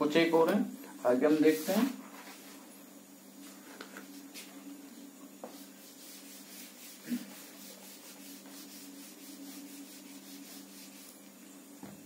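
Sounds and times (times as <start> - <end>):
eraser rubbing on whiteboard: 5.5 - 11.3.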